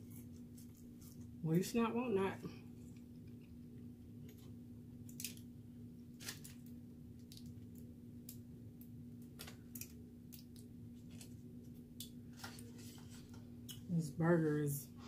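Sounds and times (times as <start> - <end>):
steady low hum: 0.0 - 15.0
foil wrappers crinkling: 6.1 - 7.6.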